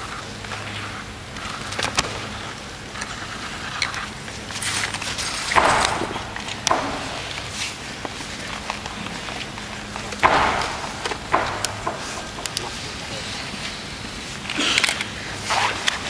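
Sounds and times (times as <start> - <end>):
sharp knocks and clicks: 4.9 - 13.1.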